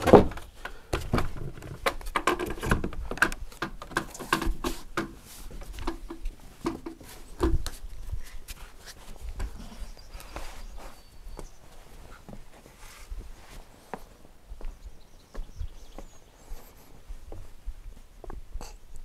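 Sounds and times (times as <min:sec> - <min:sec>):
wooden knocks and footfalls: 0:00.0 - 0:07.9.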